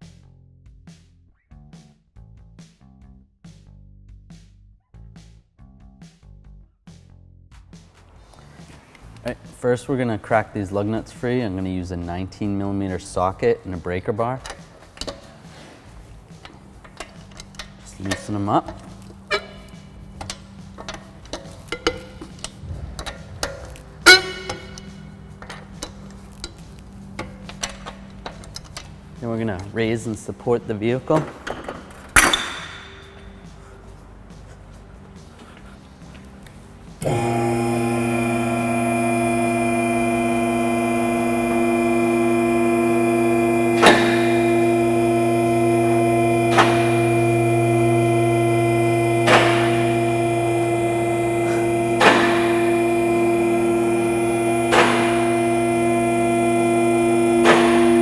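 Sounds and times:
hydraulic pump motor humming: 16.4 - 25.7, 37.0 - 58.0
socket clinking on lug nuts: 16.4 - 28.9.

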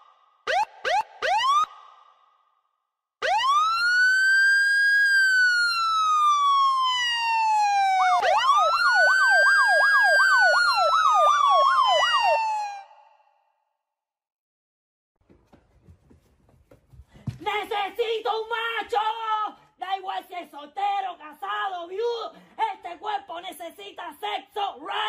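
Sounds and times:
police siren wailing: 0.5 - 1.8, 3.2 - 13.2
siren fast yelp: 0.5 - 1.8, 3.2 - 13.3.

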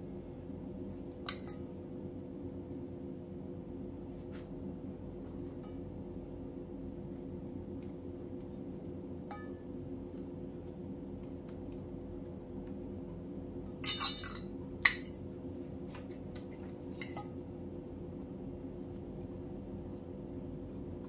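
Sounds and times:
steady low hum: 0.0 - 21.0
fork clinking on plate: 13.8 - 15.1.

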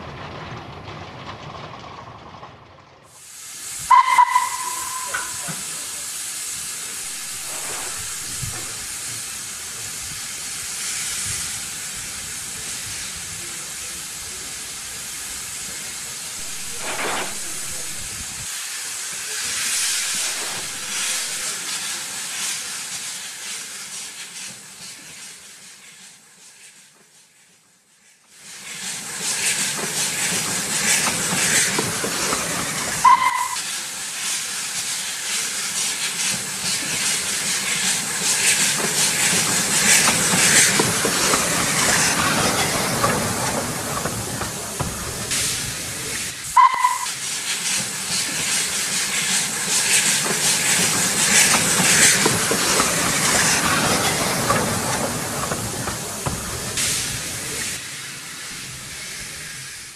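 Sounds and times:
hiss of steam: 3.1 - 59.9
short whistle toot: 3.9 - 5.4, 33.0 - 33.6, 46.6 - 47.2.

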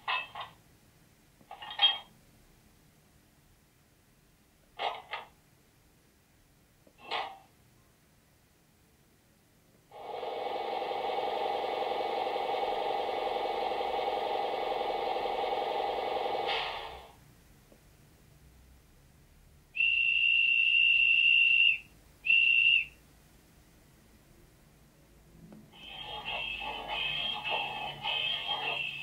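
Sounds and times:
loud steady noisy sound: 9.9 - 17.2, 25.7 - 29.0
high-pitched whistle blasts: 19.8 - 23.0.

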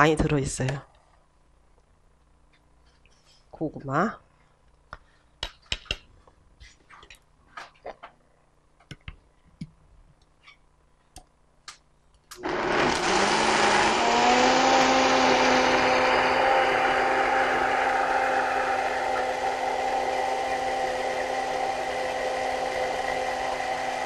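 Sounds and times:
blender running: 12.4 - 24.0.

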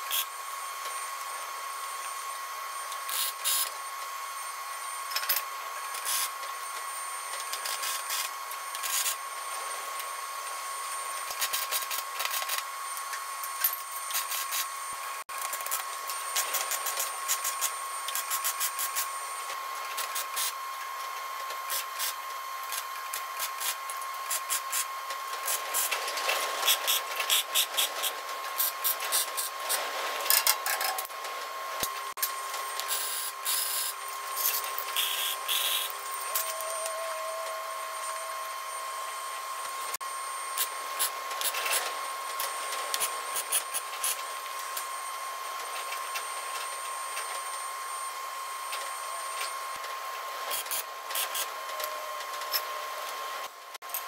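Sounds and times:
steady high whine: 0.0 - 53.8
welding arc crackle: 21.7 - 31.2, 31.8 - 36.8.

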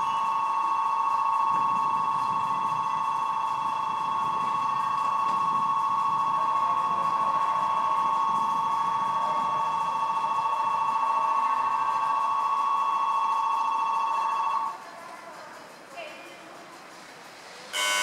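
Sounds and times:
electric departure bell ringing: 17.7 - 18.0.

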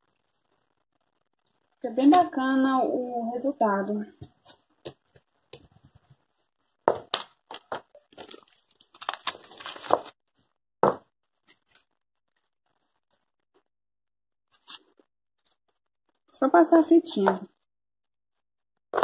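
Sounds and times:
tape rustling: 7.0 - 10.4, 11.3 - 12.0.

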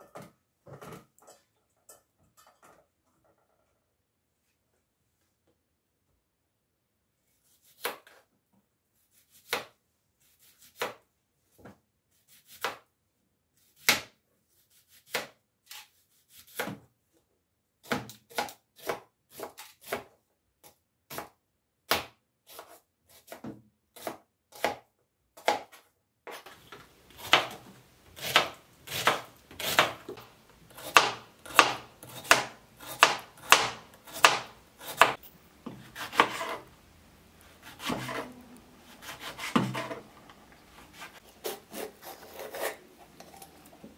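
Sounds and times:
faint background noise: 0.0 - 43.9
fast chopping of carrot: 28.2 - 30.1, 30.8 - 35.2, 35.8 - 36.6.

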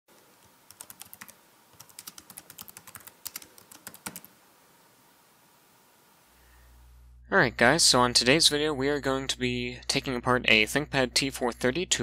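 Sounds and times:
computer keyboard typing: 0.7 - 4.3.

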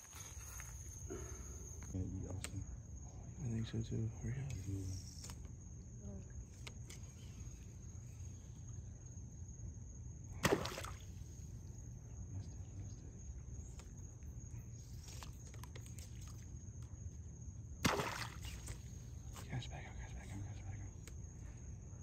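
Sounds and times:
crickets trilling: 0.0 - 22.0
splashes in shallow water: 10.4 - 11.2, 17.8 - 18.9.

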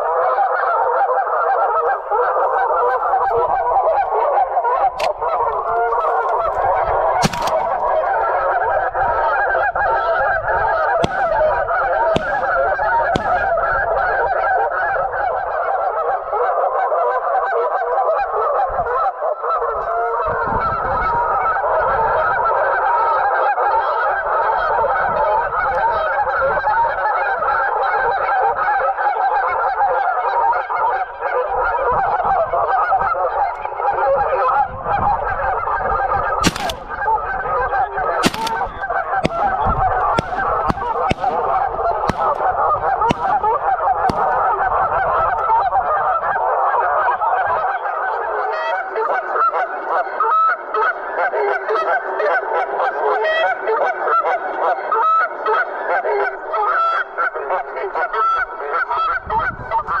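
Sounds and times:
geese honking: 0.0 - 20.2, 36.4 - 47.2
sharp clicks: 5.0 - 6.6, 7.2 - 8.0, 11.0 - 11.5, 12.2 - 13.6, 36.4 - 37.2, 38.2 - 44.5.

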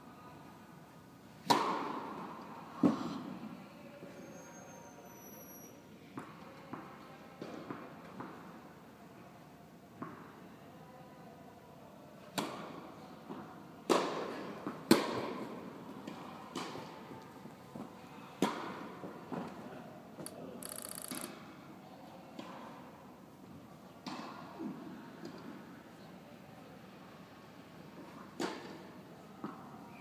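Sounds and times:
shoe squeak: 4.2 - 5.8, 20.6 - 21.3.

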